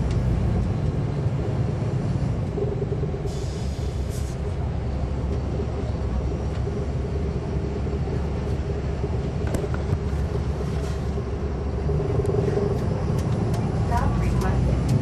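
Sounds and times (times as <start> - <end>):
bus engine rumble: 0.0 - 15.0.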